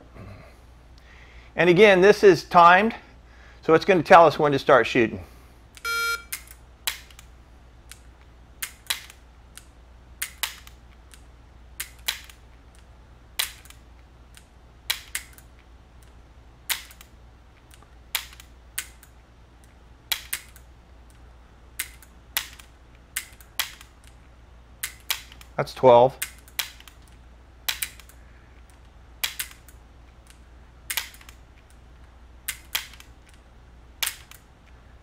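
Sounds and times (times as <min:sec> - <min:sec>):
air pistol dry-fire clicks: 0:21.8 - 0:24.2, 0:24.8 - 0:25.5, 0:26.2 - 0:33.4.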